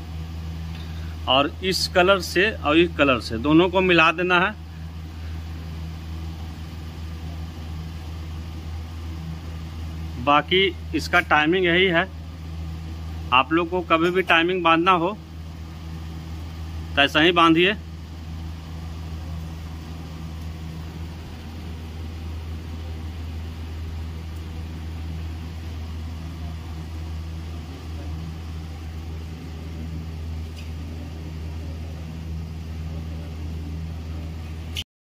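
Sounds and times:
low mechanical hum of machine: 0.0s - 34.9s.

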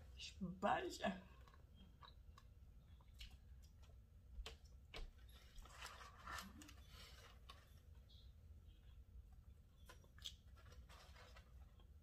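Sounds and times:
mouth clicks while eating: 1.4s - 5.2s.

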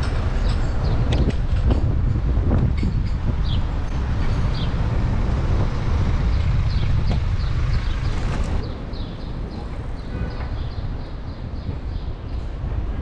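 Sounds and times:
street and traffic noise: 0.0s - 13.0s
wind buffeting microphone: 0.0s - 13.0s.

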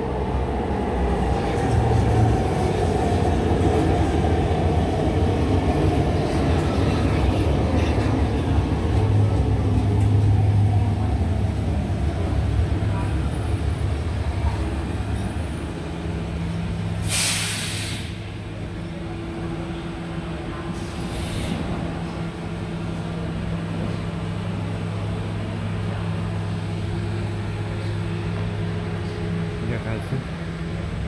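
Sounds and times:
electric train humming: 0.0s - 17.2s, 18.0s - 31.0s
compressed air hiss: 17.0s - 18.2s.

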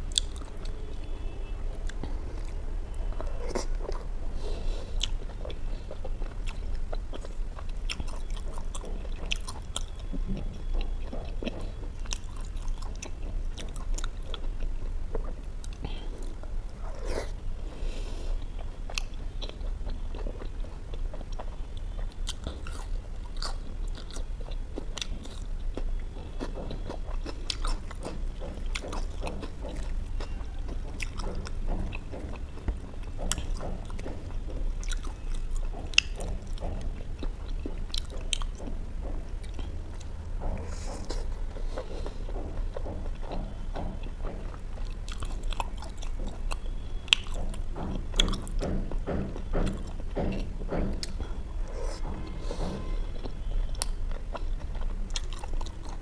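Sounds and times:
low steady hum: 0.0s - 56.0s
person chewing food: 0.0s - 56.0s.

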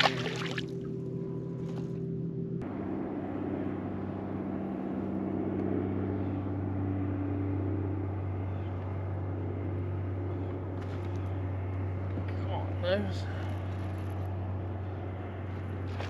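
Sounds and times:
water rushing: 0.0s - 0.8s
wind: 0.0s - 16.0s.

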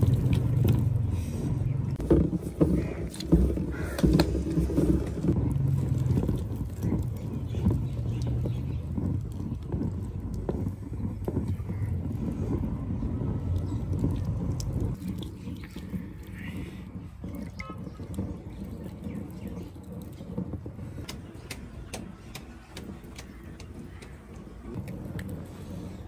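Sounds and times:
potter's wheel rumbling: 0.0s - 26.0s
wet clay being worked: 0.0s - 26.0s
small knocks: 1.9s - 15.0s.

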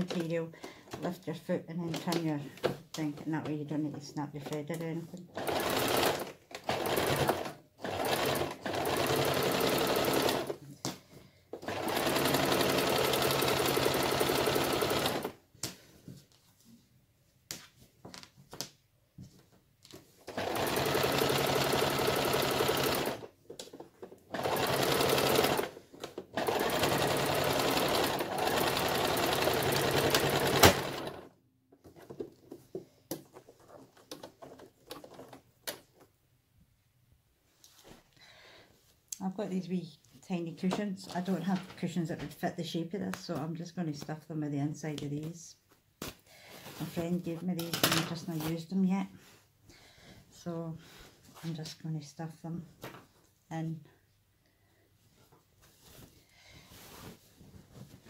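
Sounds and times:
sewing machine stitching: 5.3s - 10.6s, 11.6s - 15.4s, 20.3s - 23.3s, 24.0s - 31.3s.

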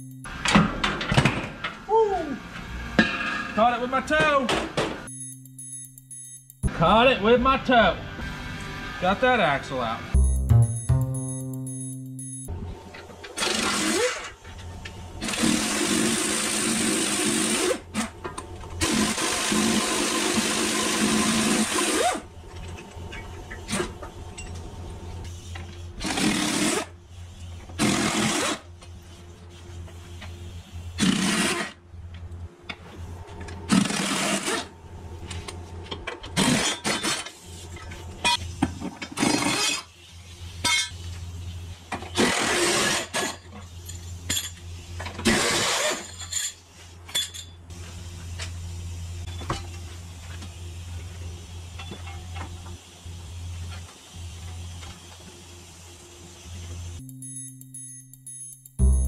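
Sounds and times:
steady low hum: 56.7s - 59.0s.

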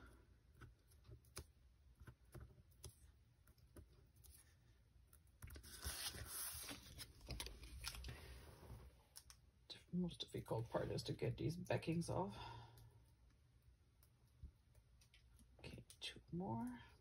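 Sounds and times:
paper rustling: 5.4s - 8.6s.

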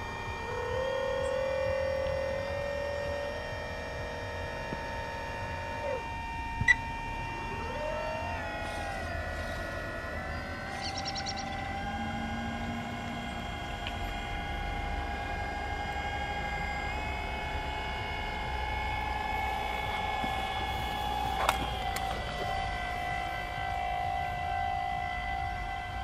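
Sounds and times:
electric motor whine: 0.0s - 26.0s.

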